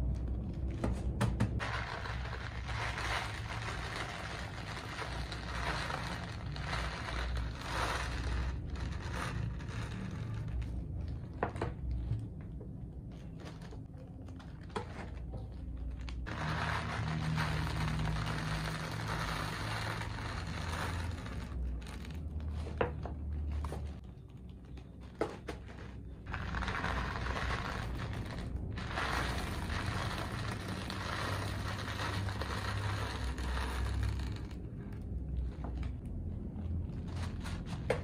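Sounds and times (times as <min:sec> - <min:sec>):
plastic bag crinkling: 0:01.6 - 0:11.2, 0:13.0 - 0:38.0
plastic beads pouring: 0:01.6 - 0:11.5, 0:15.7 - 0:23.6, 0:25.7 - 0:38.0.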